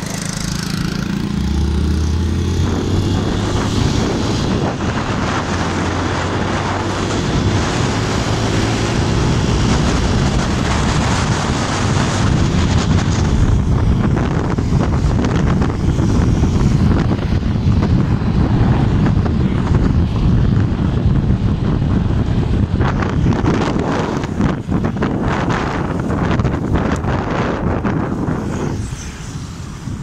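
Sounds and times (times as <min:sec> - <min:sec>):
wind buffeting microphone: 0:00.0 - 0:30.0.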